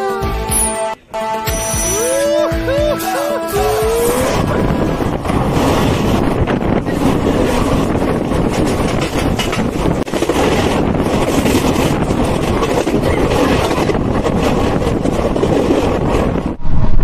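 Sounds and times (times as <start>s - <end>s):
wind buffeting microphone: 3.6s - 17.0s
train wheels rumbling on rails: 3.8s - 16.6s.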